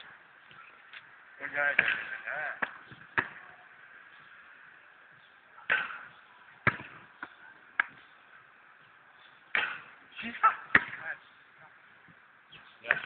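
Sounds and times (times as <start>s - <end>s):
basketball thuds: 1.7s - 3.5s, 5.6s - 8.0s, 10.7s - 11.1s.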